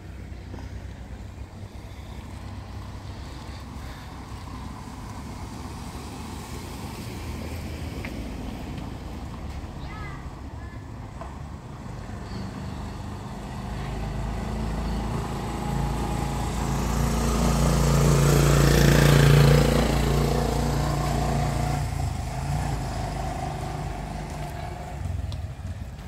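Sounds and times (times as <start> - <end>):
vehicle engine passing by: 11.8 - 26.0.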